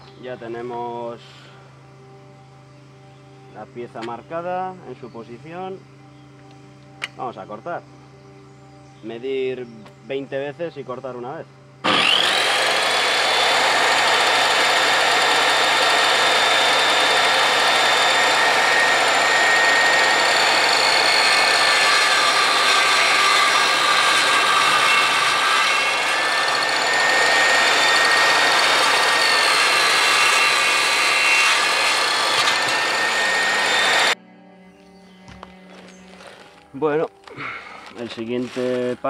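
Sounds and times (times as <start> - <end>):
mitre saw cutting wood: 11.8 - 34.2.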